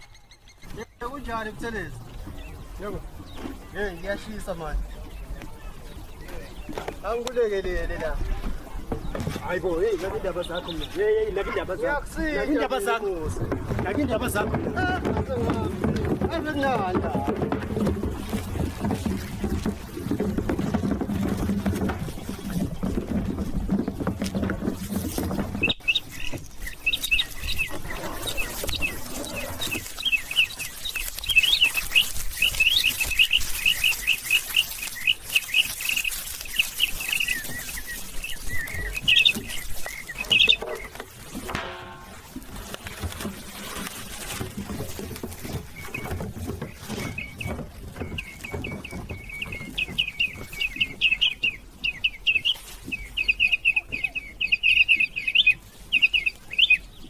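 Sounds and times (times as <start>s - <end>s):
rapid high-pitched chirping: 25.6s - 40.6s.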